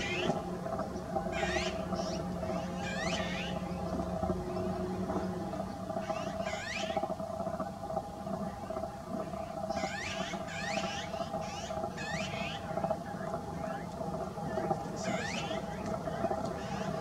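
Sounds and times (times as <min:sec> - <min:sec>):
steady background hum: 0:00.0 - 0:17.0
harsh magpie calls: 0:01.3 - 0:03.6, 0:06.0 - 0:07.0, 0:09.7 - 0:12.7.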